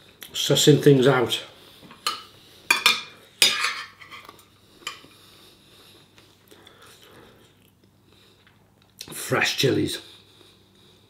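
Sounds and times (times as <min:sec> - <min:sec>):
fork scraping plate: 0:02.0 - 0:05.1.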